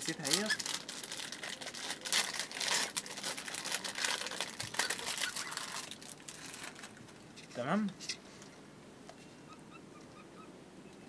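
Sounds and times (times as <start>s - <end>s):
plastic wrapper crinkling: 0.0s - 7.2s.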